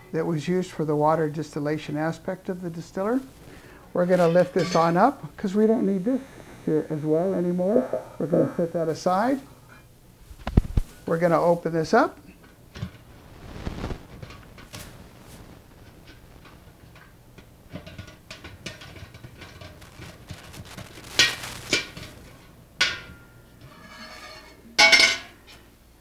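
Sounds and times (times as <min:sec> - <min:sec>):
metal pot lid clanking and scraping: 0:17.0 - 0:19.8, 0:22.8 - 0:25.4.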